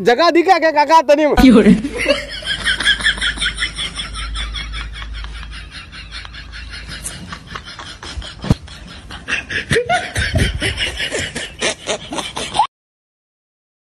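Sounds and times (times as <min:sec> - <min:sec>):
man laughing: 0:01.4 - 0:12.7.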